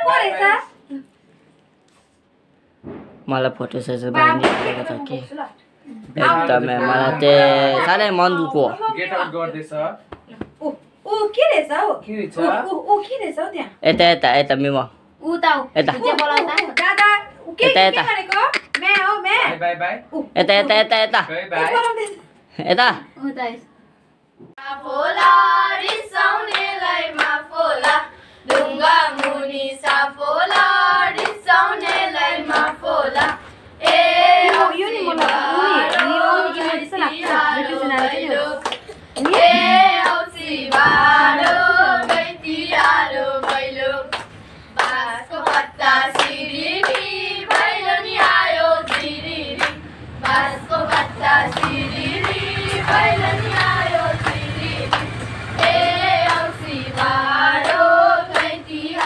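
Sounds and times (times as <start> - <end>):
rhythmic hand clapping: 18.3 - 19.1, 25.1 - 59.0
girls singing in unison: 24.6 - 59.0.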